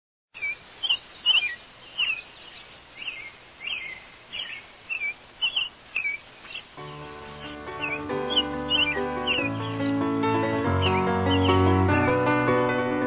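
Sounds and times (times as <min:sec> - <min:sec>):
bird chirping: 0:00.3 - 0:12.2
faint background hiss: 0:00.4 - 0:10.3.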